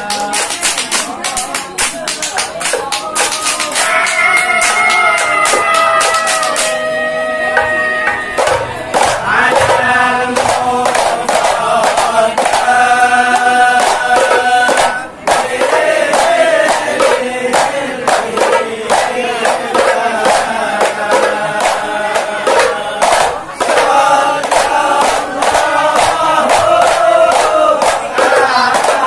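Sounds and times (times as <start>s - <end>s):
frame drums in quick rhythm: 0.0s - 6.8s, 7.6s - 29.0s
men singing a devotional chant: 8.4s - 29.0s.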